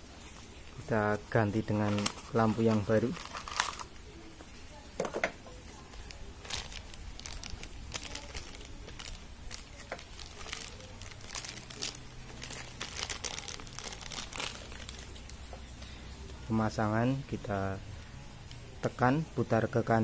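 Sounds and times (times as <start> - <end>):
plastic bag crinkling: 0.2 - 4.1, 5.7 - 15.8.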